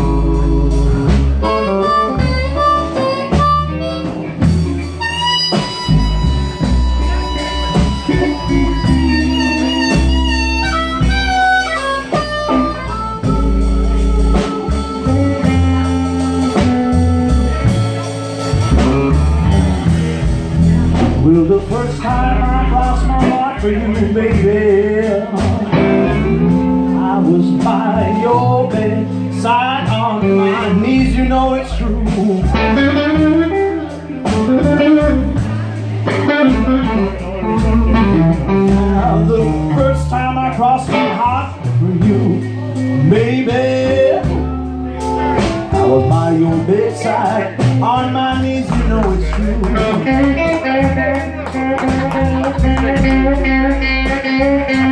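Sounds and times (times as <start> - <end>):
amplified harmonica wailing: 0.0 - 20.2
blues band playing: 0.0 - 54.9.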